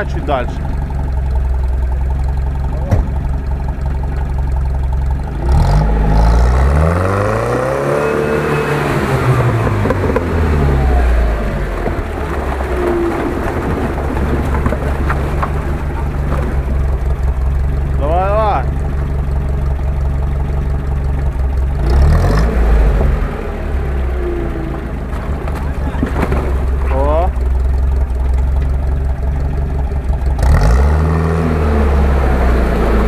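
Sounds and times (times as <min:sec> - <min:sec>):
engine running and revving: 0:05.1 - 0:19.5, 0:21.1 - 0:33.0.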